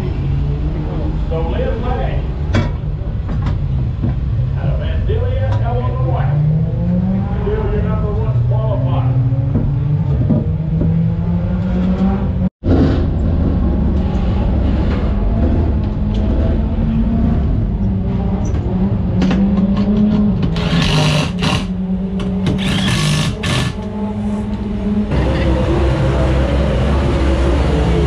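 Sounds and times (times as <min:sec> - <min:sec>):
engine drone: 0:04.0 - 0:28.0
cordless drill running: 0:22.6 - 0:23.8.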